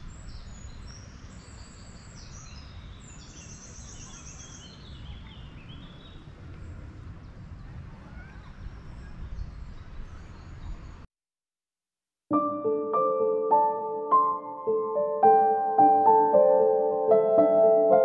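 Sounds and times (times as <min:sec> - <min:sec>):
songbirds singing: 0:00.0 - 0:11.1.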